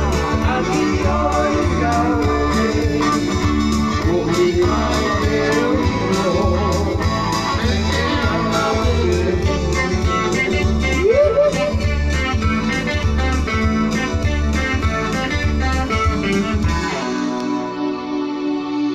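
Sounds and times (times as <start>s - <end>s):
man singing: 0.0s - 11.9s
strummed acoustic guitar: 0.0s - 17.8s
deep bass line: 0.0s - 18.9s.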